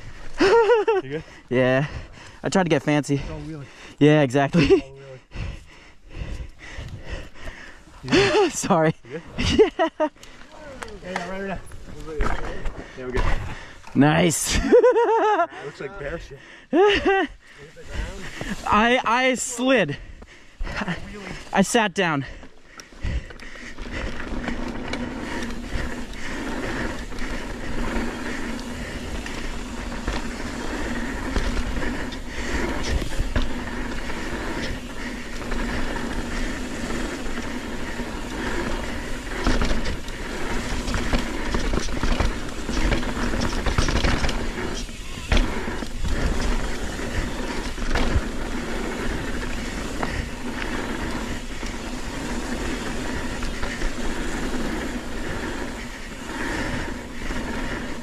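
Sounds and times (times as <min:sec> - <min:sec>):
bike rattling: 0:00.0 - 0:58.0
tyres rolling on dirt: 0:06.2 - 0:58.0.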